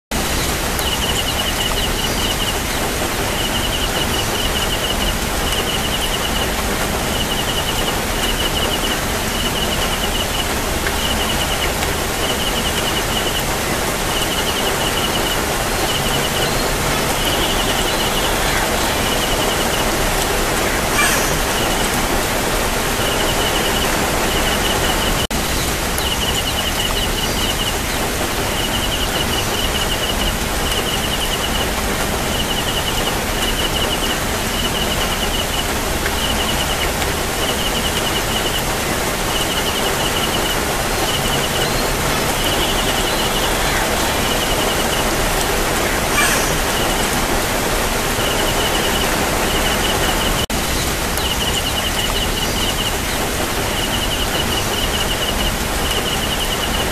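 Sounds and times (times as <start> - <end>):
steady outdoor hiss: 0.1 - 56.9
small animal high chirp: 20.9 - 21.8, 46.1 - 47.0.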